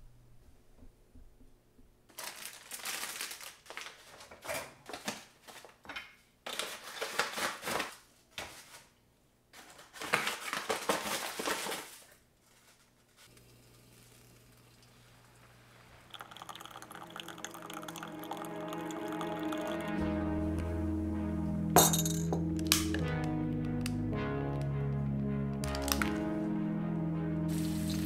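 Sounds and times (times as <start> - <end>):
foil coffee bag crinkling: 2.1 - 5.7, 6.5 - 8.0, 9.6 - 14.3.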